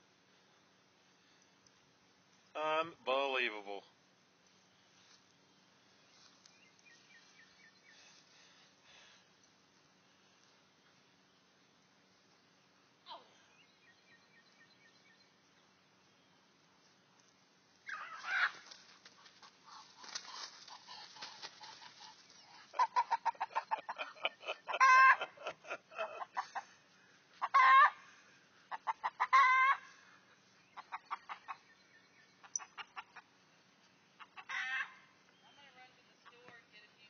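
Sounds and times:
rooster squawking: 0:17.9 - 0:18.7, 0:24.7 - 0:25.4, 0:27.4 - 0:28.0, 0:28.8 - 0:29.8, 0:34.2 - 0:35.0
rooster clucking: 0:19.7 - 0:26.7, 0:27.4 - 0:28.0, 0:28.7 - 0:29.8, 0:34.2 - 0:34.9.

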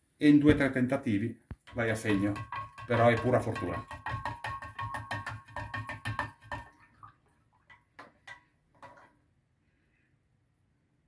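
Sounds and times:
spoon stirring in a glass jar: 0:01.6 - 0:09.2.

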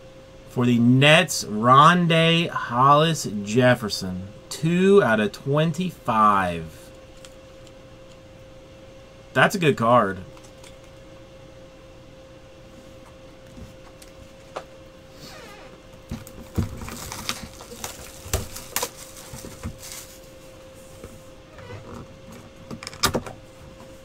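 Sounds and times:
faint hum: 0:00.0 - 0:24.0
cardboard rustling: 0:16.1 - 0:21.1.

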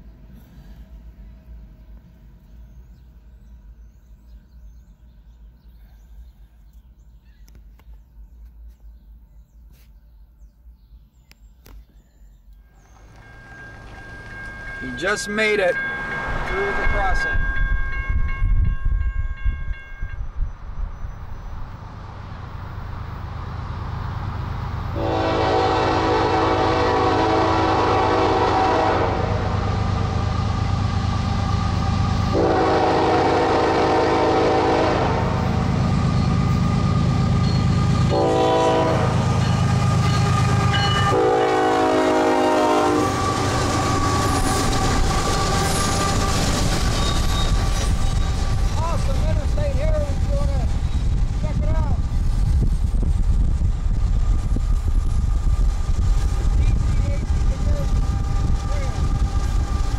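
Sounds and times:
diesel engines rumbling: 0:12.8 - 0:17.4
locomotive air horn: 0:25.0 - 0:30.6, 0:32.2 - 0:35.6, 0:37.8 - 0:46.4.

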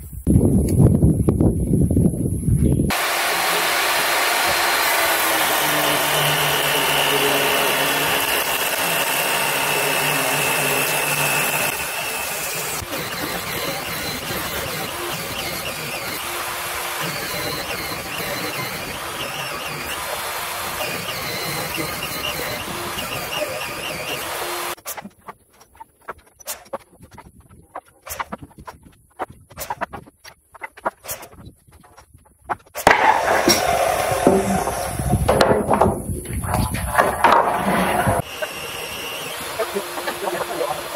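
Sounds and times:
table saw ripping wood: 0:02.9 - 0:25.0, 0:32.8 - 0:36.0, 0:37.0 - 0:40.9
lumber knocking and clacking: 0:35.3 - 0:36.3.

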